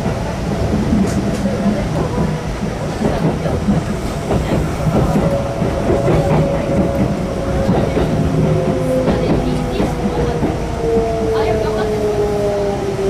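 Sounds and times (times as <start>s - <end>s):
train wheels clicking over rail joints: 0.0s - 11.3s
train whine falling in pitch: 4.3s - 13.0s.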